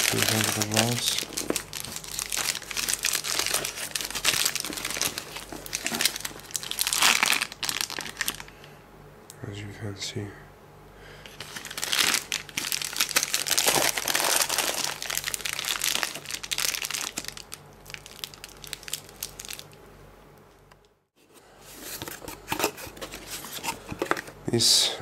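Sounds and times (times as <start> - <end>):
paper and plastic crumpling: 0.0 - 8.5, 11.3 - 19.7.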